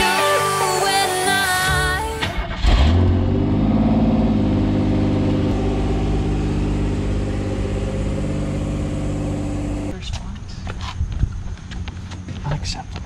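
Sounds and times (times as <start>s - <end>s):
car engine starting and idling: 0.0s - 10.0s.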